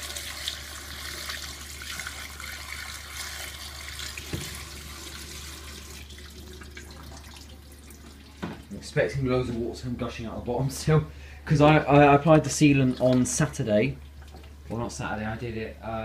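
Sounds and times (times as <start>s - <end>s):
water pouring into tub: 0.0s - 8.9s
low steady hum: 0.0s - 16.0s.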